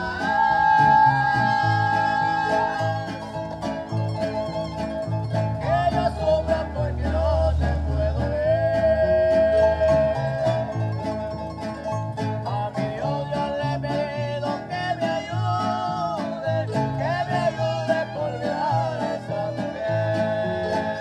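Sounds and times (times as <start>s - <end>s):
sliding violin melody: 0.0s - 6.4s
harp plucked bass line: 0.0s - 21.0s
strummed string chords: 0.0s - 21.0s.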